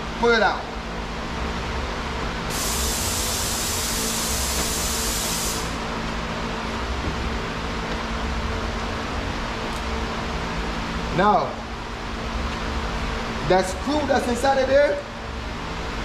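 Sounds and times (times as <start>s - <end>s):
steady background hum: 0.0s - 16.0s
hiss: 2.5s - 5.8s.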